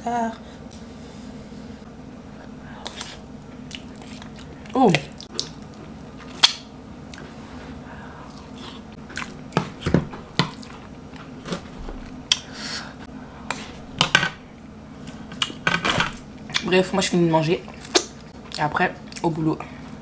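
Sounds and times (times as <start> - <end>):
steady low hum: 0.0 - 20.0
person chewing food: 2.7 - 12.6
wet mouth smacks: 5.1 - 7.2.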